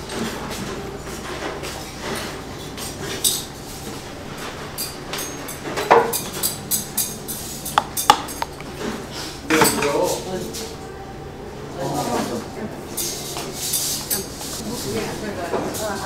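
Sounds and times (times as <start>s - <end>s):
spoon clinking and scraping bowls: 4.8s - 8.9s, 12.9s - 14.9s.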